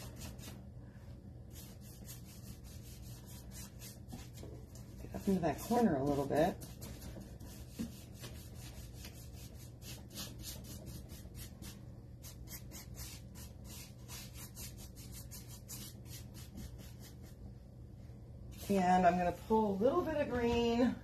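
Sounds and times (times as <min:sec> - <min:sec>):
paintbrush swishing on wood: 0:00.0 - 0:00.6, 0:01.4 - 0:17.4
steady low hum: 0:00.0 - 0:21.0.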